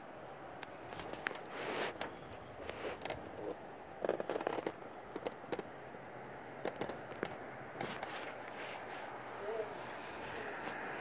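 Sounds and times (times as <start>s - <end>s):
wind and light rain hiss: 0.0s - 11.0s
sharp ticks and crackles: 0.6s - 5.8s, 6.6s - 8.6s.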